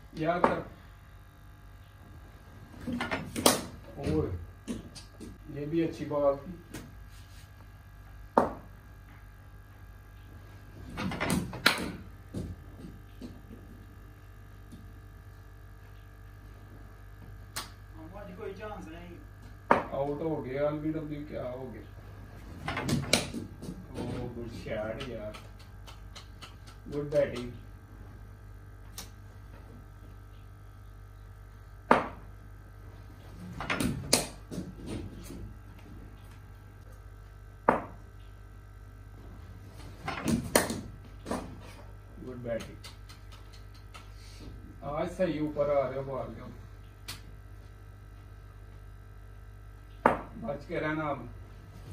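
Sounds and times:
ball hitting tiled floor and walls: 22.6 - 23.8, 40.0 - 41.6
ball bouncing: 37.6 - 38.0, 50.0 - 50.3.

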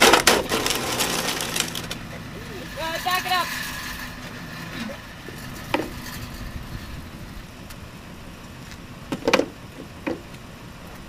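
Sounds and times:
sharp knocks of snow pusher: 0.0 - 1.9
truck engine idling: 0.0 - 11.0.

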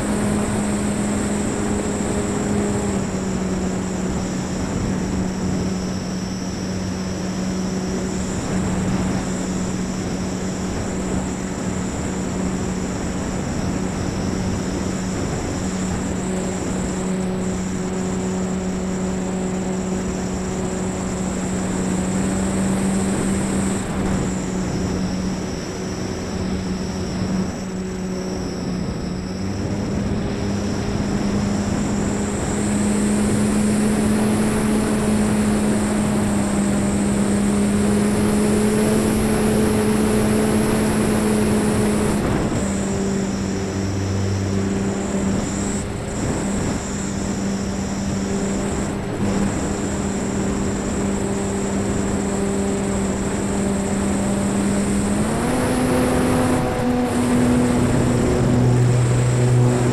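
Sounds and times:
electric motor and propeller whine: 0.0 - 59.9.

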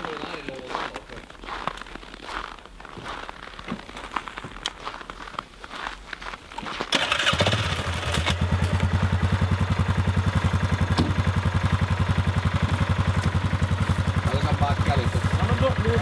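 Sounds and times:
vehicle engine starting and idling: 6.9 - 16.0.

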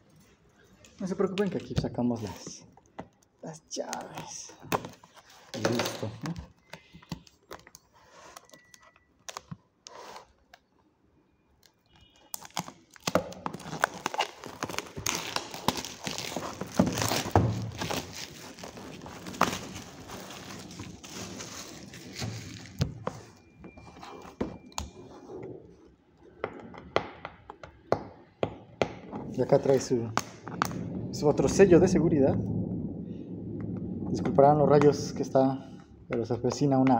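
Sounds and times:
cardboard box scraping and knocks: 15.8 - 24.7.

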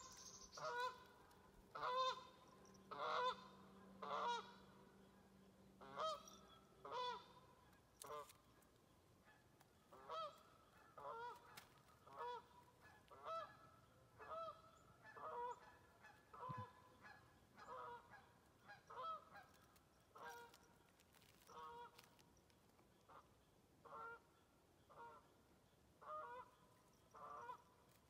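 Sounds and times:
geese honking: 0.0 - 4.8, 5.8 - 8.3, 9.3 - 19.5, 26.0 - 26.6, 27.2 - 27.7.

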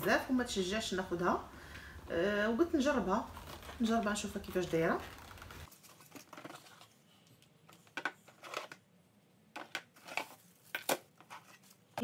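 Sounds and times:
cardboard packaging rustling: 3.2 - 8.8, 9.9 - 12.0
plastic parts clicking and knocking: 7.7 - 8.8, 9.5 - 11.4.

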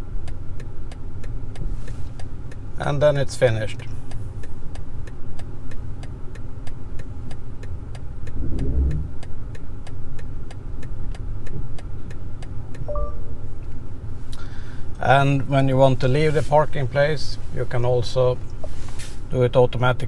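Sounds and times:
low car rumble: 3.8 - 18.6
short chime: 12.9 - 13.4.

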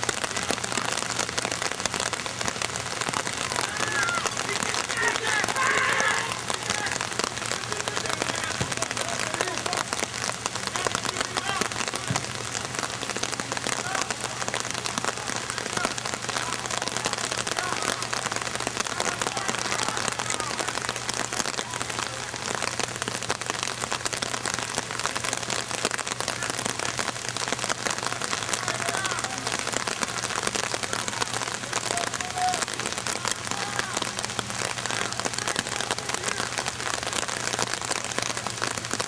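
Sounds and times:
steady rain patter: 0.0 - 39.0.

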